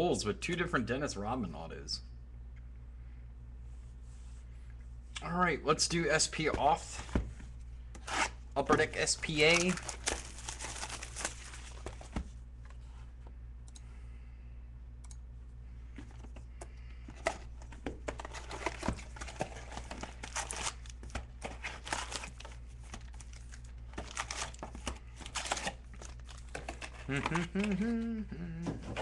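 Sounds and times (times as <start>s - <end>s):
steady low hum: 0.0s - 29.0s
foil wrappers tearing and crinkling: 9.1s - 11.9s, 18.3s - 27.2s.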